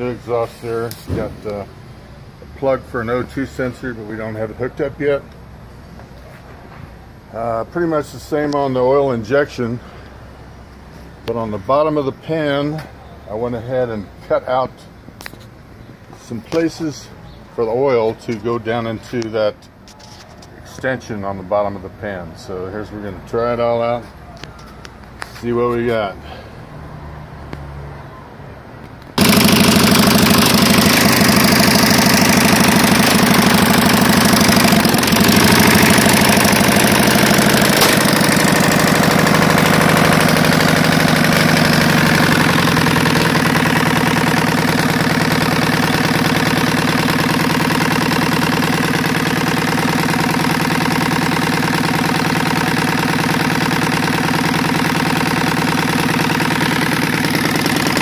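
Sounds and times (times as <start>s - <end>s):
engine starting and running: 0.0s - 13.9s, 28.9s - 58.0s.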